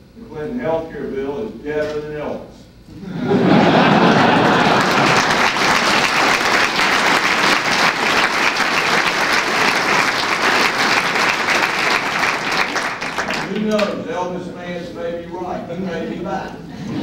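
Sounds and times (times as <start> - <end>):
audience applauding: 3.7 - 13.9.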